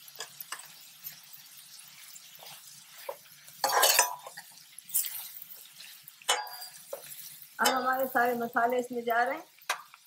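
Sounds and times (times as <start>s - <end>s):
spoon scraping and clattering: 2.4s - 7.8s
metal spoon clicking in a pan: 9.7s - 10.0s.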